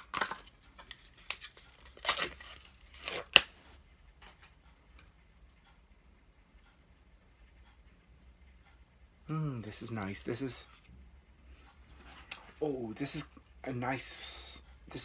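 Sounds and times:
plastic packaging crinkling and tearing: 0.0s - 3.5s.

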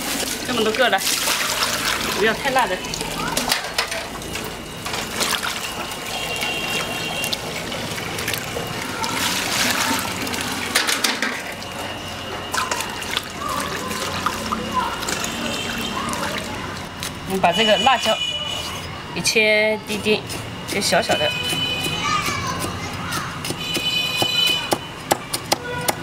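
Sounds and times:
tap water running: 0.0s - 18.1s
water splashing in a steel basin: 0.0s - 18.8s.

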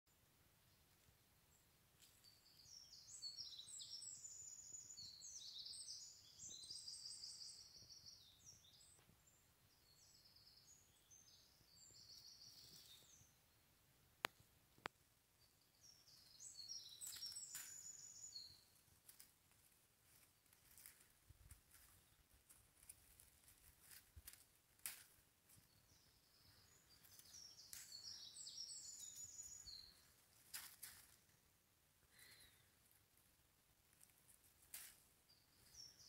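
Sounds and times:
songbird twittering: 2.2s - 13.4s, 15.4s - 18.7s, 25.7s - 30.2s.

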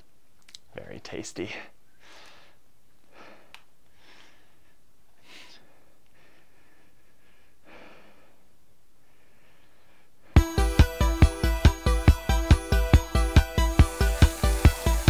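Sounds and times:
low room hiss: 0.0s - 10.4s
person breathing through the nose: 2.0s - 10.4s.

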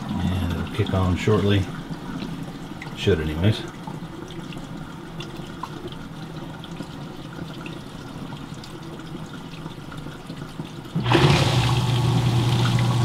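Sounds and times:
faint water drips: 0.0s - 11.0s
water trickling down drain pipe: 0.0s - 13.0s.

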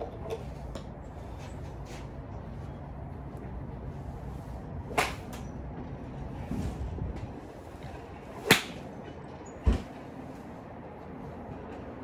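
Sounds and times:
wind rumble on microphone: 0.0s - 12.0s
golf club striking ball: 8.4s - 8.8s.

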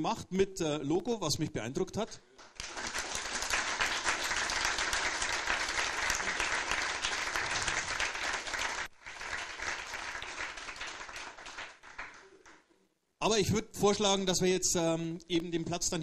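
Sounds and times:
audience applauding: 2.4s - 12.6s.

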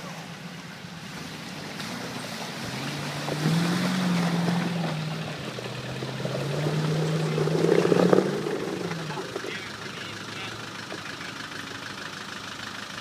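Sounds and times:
car engine working hard: 0.0s - 13.0s
tyres churning mud and stones: 1.0s - 13.0s.

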